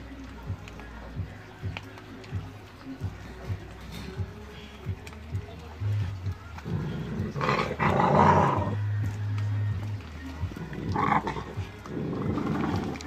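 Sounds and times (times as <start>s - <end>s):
background music with bass: 0.0s - 13.0s
puppy growling: 6.6s - 8.8s, 10.6s - 13.0s.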